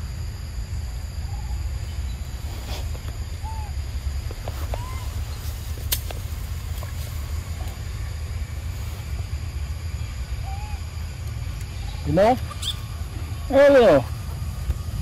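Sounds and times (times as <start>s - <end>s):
rising and falling whistled call: 3.4s - 3.8s, 4.6s - 5.6s, 10.4s - 11.0s, 11.6s - 12.9s.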